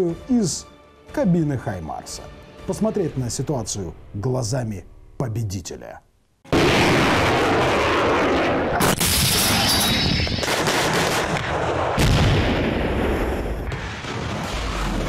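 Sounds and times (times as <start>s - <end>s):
artillery blasts: 6.5s - 15.0s.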